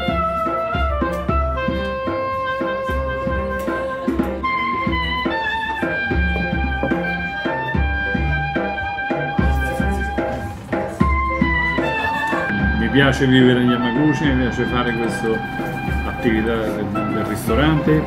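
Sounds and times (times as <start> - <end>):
jazzy background music: 0.0 - 18.0.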